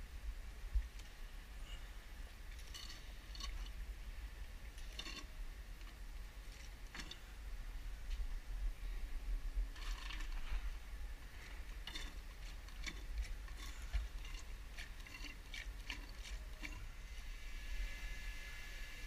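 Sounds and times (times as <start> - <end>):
low rumble: 5.4 - 15.0
oil pump clicking and rattling: 9.8 - 10.5, 11.4 - 16.9.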